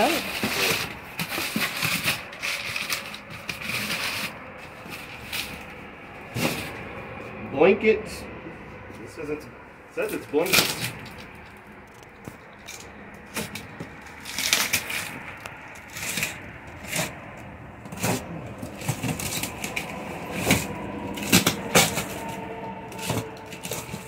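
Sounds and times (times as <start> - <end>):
box cutter slicing tape: 13.3 - 15.2.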